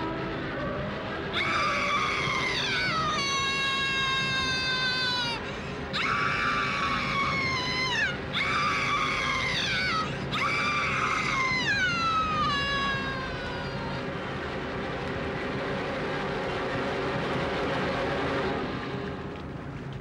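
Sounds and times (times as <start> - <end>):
woman screaming: 1.3 - 14.1.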